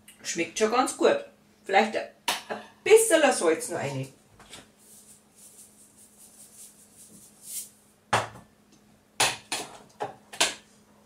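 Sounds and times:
salt shaker shaking: 4.8s - 7.8s.

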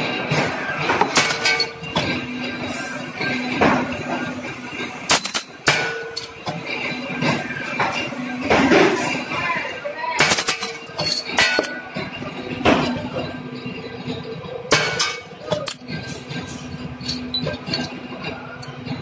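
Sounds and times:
steel slugs clinking into metal bin: 1.0s - 2.2s, 10.2s - 13.3s, 14.7s - 18.0s.

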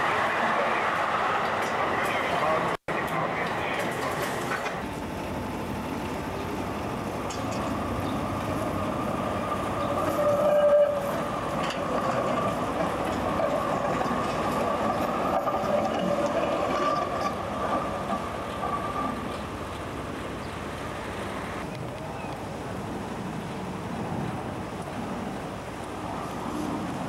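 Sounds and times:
tram rumbling on rails: 0.0s - 27.0s.

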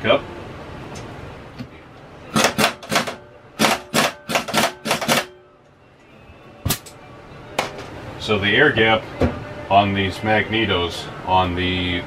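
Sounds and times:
sharp metallic clacks: 2.4s - 5.3s.

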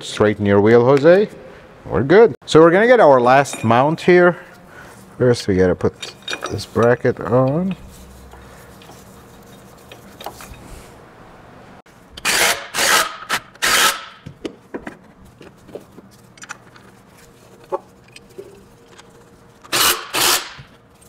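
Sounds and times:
power wrench driving bolts: 19.6s - 20.7s.

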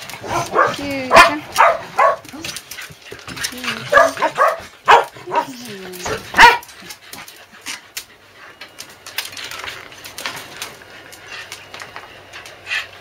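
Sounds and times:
dog yipping: 0.3s - 2.3s, 3.9s - 5.5s, 6.3s - 6.7s
dogs whimpering: 0.3s - 8.6s.

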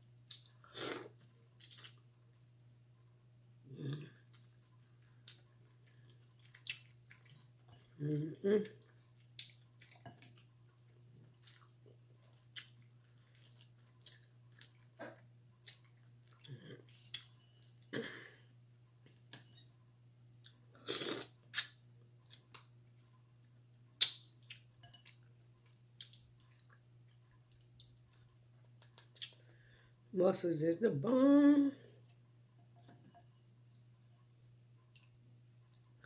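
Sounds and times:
faint low hum: 0.0s - 36.0s
chewing and wet mouth smacks: 1.6s - 2.2s, 4.3s - 7.8s, 8.8s - 17.3s, 24.0s - 29.5s.

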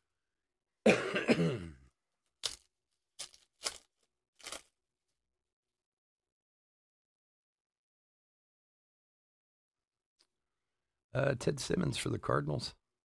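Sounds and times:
man coughing: 0.9s - 1.9s
foil wrapper crackling torn open: 2.4s - 4.8s.

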